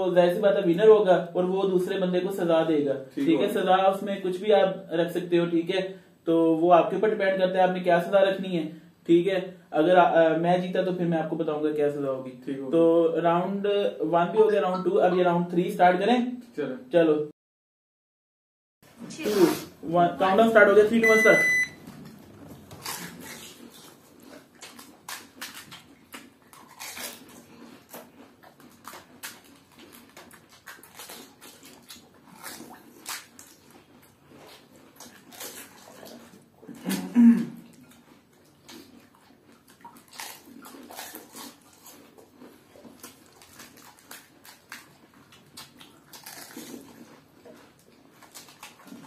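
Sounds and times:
throaty grunt: 36.8s - 37.6s
crisp shells crunching: 42.8s - 46.9s.

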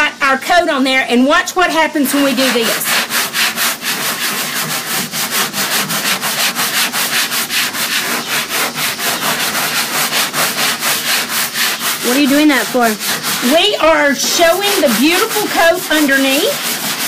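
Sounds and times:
hand sanding strokes: 1.6s - 17.0s.

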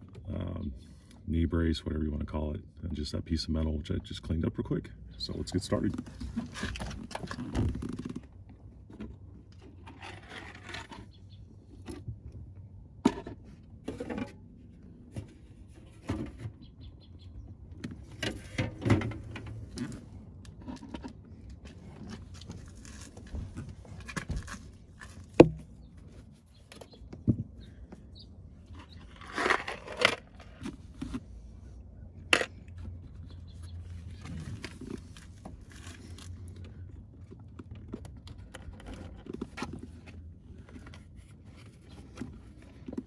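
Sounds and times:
plastic parts clicking and scraping: 5.7s - 11.2s, 28.6s - 31.6s, 32.2s - 43.0s.

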